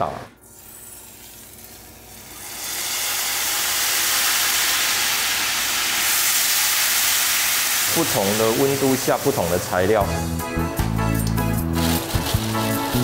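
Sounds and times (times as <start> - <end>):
hot oil sizzling: 0.5 - 10.0, 11.6 - 13.0.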